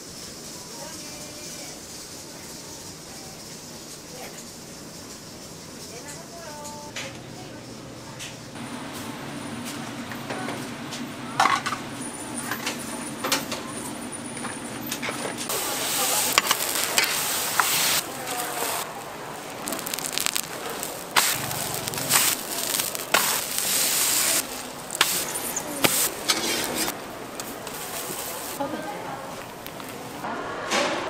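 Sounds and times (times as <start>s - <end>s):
cooking utensils clicking and knocking: 11.4s - 28.6s
food sizzling in hot oil: 15.5s - 27.0s, 27.7s - 28.6s.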